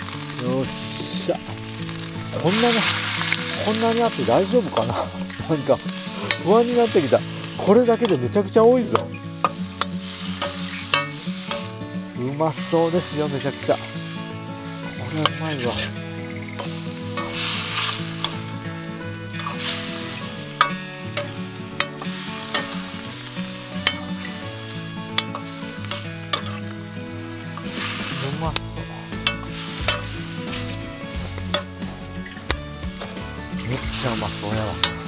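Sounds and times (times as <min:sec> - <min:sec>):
food sizzling in a wok: 0:00.0 - 0:35.0
utensil clinking against pan: 0:08.9 - 0:11.7, 0:20.6 - 0:22.9, 0:23.8 - 0:24.3, 0:25.2 - 0:26.7.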